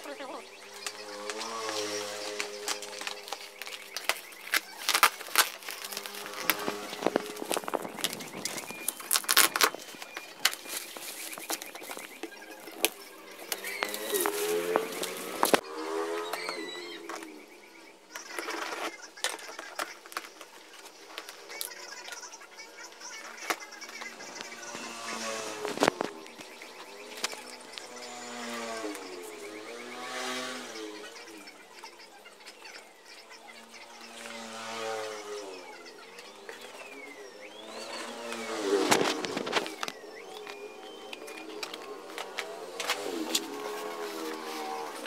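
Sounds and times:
cardboard rustling and crackling: 0:00.0 - 0:17.4, 0:18.1 - 0:32.0, 0:36.3 - 0:45.0
passing engine: 0:00.0 - 0:18.2, 0:22.4 - 0:31.7, 0:33.6 - 0:45.0
packing tape pulled: 0:00.8 - 0:15.6.

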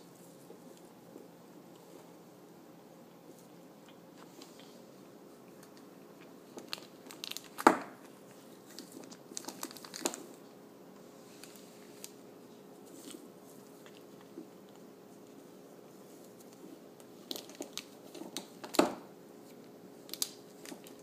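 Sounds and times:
plastic wrapper crinkling: 0:06.5 - 0:10.5, 0:17.2 - 0:19.0, 0:20.0 - 0:21.0.

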